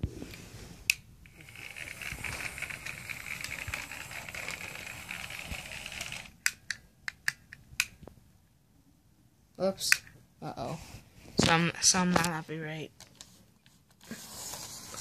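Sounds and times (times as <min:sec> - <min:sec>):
model train motor whirring: 0:01.2 - 0:06.4
sharp clicks: 0:02.0 - 0:08.1.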